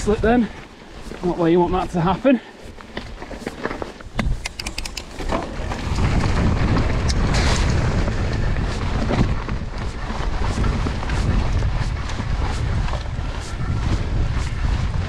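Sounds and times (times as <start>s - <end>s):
bike tyre rumble on trail: 0.0s - 15.0s
wind buffeting microphone: 4.1s - 15.0s.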